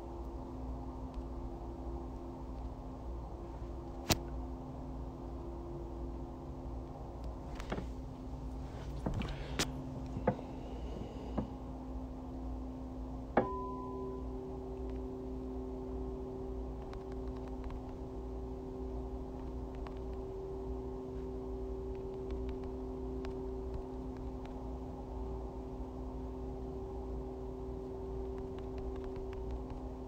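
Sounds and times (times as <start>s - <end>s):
held low tones humming: 0.0s - 30.0s
low rumble: 13.4s - 30.0s.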